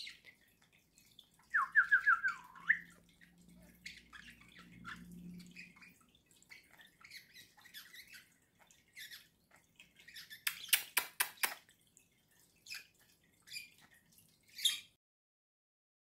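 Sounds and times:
budgerigar chirping and clicking: 0:01.0 - 0:11.7.

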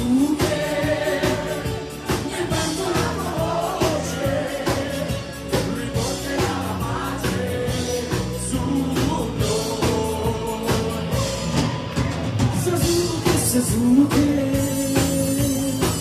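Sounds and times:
bass guitar: 0:00.0 - 0:16.0
drum kit beat: 0:00.0 - 0:16.0
girls' vocal group singing: 0:00.2 - 0:08.4.

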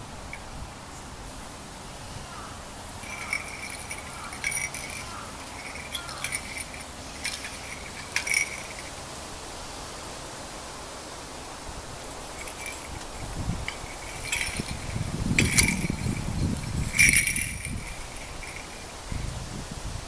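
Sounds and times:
small bell jingling: 0:03.0 - 0:09.1, 0:12.1 - 0:19.4.

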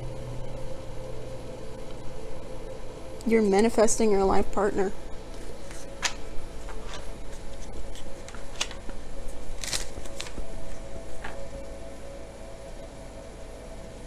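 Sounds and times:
faint steady hum: 0:00.0 - 0:14.0
cards being shuffled: 0:05.3 - 0:11.6.

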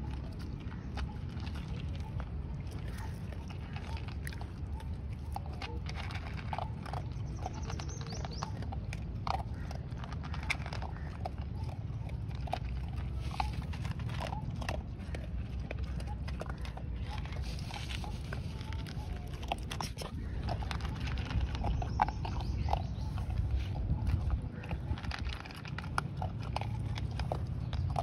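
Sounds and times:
dog crunching dry kibble: 0:00.0 - 0:28.0.

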